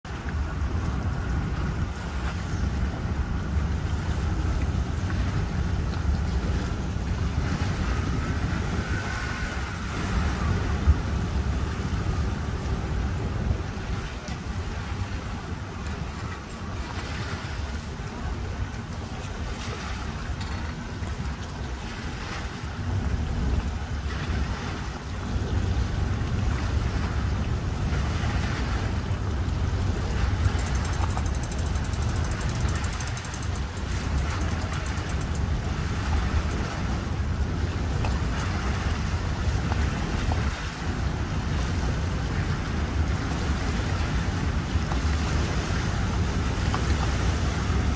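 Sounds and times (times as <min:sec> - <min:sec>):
wind rumbling on microphone: 0:00.0 - 0:47.9
small waves lapping on concrete: 0:00.1 - 0:47.9.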